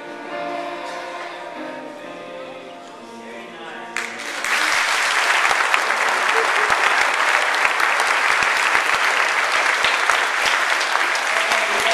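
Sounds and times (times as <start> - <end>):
crowd applauding: 4.0 - 11.9.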